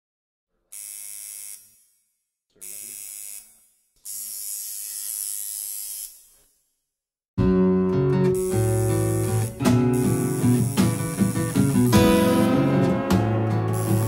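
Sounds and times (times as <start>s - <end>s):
tattoo machine buzzing: 0.7s - 2.0s, 2.6s - 6.6s, 8.3s - 14.0s.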